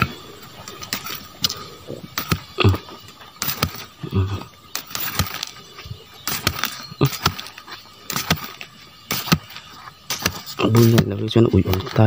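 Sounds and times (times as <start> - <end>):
machete chopping into soil: 2.2 - 2.6, 3.4 - 3.9, 4.7 - 5.6, 6.2 - 11.9.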